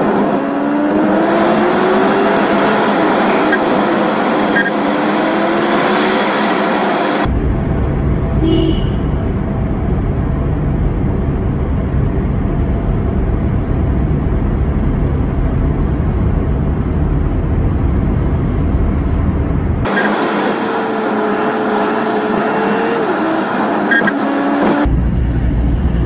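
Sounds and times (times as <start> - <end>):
car driving through tunnel: 0.0 - 26.0.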